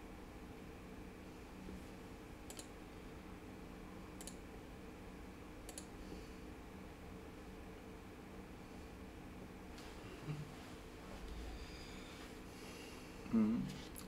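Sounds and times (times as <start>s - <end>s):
faint steady hum: 0.0s - 14.0s
computer mouse clicking: 2.4s - 2.7s, 4.2s - 4.4s, 5.6s - 5.9s.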